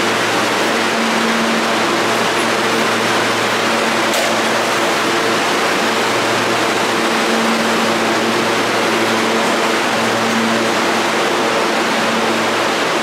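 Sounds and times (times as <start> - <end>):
subway station rushing roar: 0.0 - 13.0.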